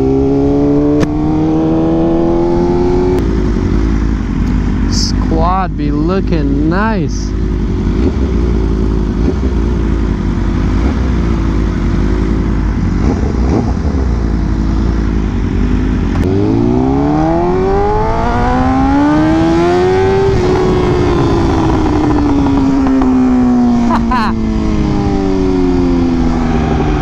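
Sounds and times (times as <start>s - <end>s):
motorcycle engine revving: 0.0s - 5.3s, 6.9s - 27.0s.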